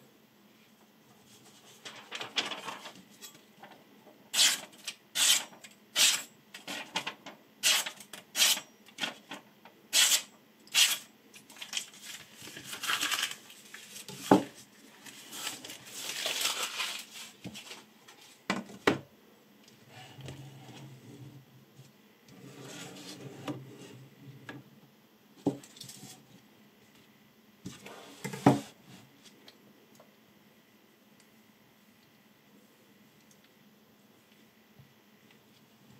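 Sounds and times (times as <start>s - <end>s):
paper rustling: 1.2s - 3.8s, 6.6s - 7.3s, 11.4s - 18.4s
knife slicing paper: 10.0s - 11.1s.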